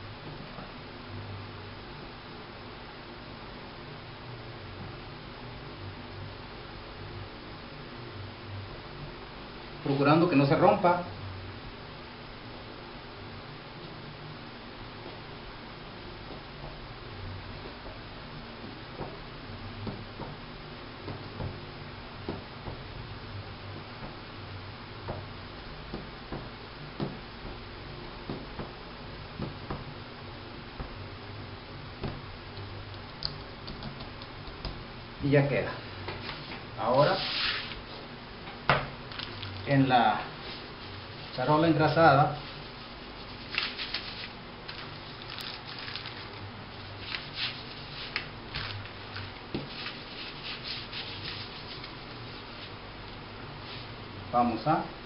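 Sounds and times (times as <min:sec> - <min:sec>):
steady background hiss: 0:00.0 - 0:55.0
rolling pin tapping on table: 0:28.3 - 0:28.8
hand rubbing a metal baking tray: 0:36.2 - 0:38.0, 0:47.0 - 0:48.2, 0:49.6 - 0:52.8.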